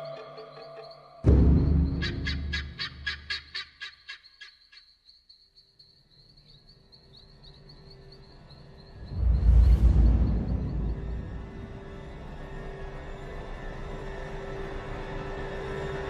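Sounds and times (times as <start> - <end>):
low rumbling music: 0.0 - 3.2, 7.2 - 16.0
guineafowl alarm calls: 1.8 - 4.9.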